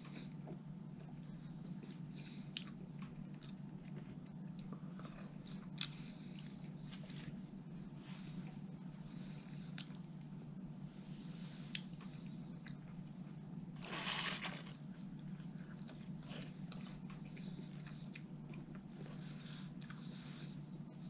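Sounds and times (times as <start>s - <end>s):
steady low hum: 0.0s - 21.0s
chewing and biting food: 1.8s - 7.2s.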